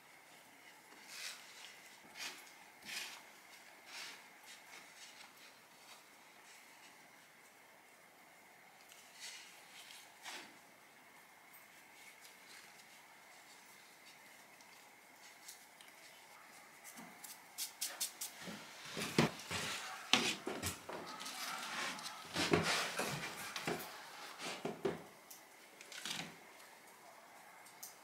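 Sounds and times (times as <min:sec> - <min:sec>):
hands rustling and patting flour: 0:00.1 - 0:07.6.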